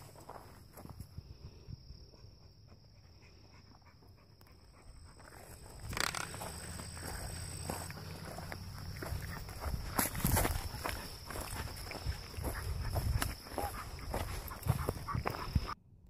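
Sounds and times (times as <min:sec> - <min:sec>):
scuffing noise: 0:05.9 - 0:15.8
dog panting: 0:10.9 - 0:15.8.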